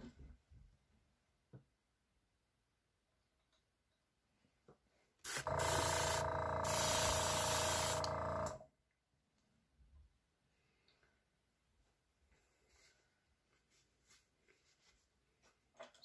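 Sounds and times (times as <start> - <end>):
airbrush air hissing: 5.3 - 8.1
compressor humming: 5.3 - 8.6.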